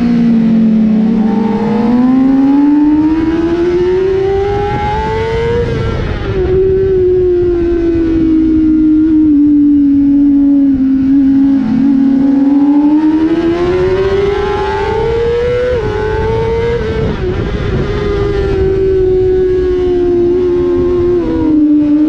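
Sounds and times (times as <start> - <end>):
motorcycle engine at high revs: 0.0 - 22.0
wind rushing over microphone: 0.0 - 22.0.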